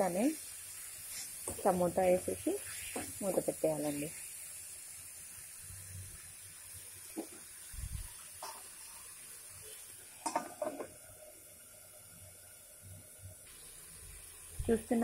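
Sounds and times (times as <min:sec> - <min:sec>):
faint steady hiss: 0:00.0 - 0:15.0
steel spoon scraping a pan: 0:01.0 - 0:01.7, 0:02.6 - 0:04.0.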